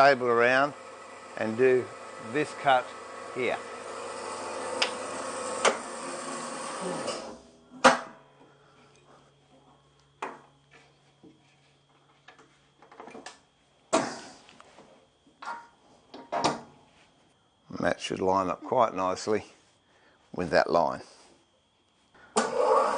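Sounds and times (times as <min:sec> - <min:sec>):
metallic clunks and knocks: 0:15.4 - 0:16.7.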